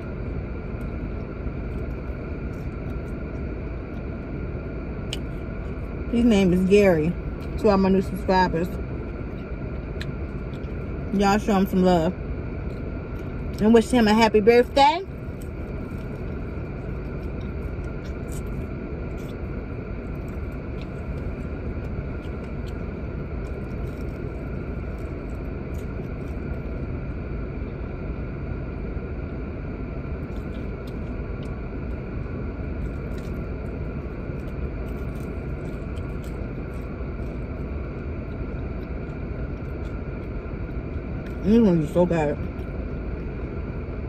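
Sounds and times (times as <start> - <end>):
idling car rumble: 0.0 - 44.0
chewing and food handling clicks: 5.0 - 5.8, 9.1 - 10.9, 15.2 - 26.6, 30.2 - 32.0, 32.8 - 41.6.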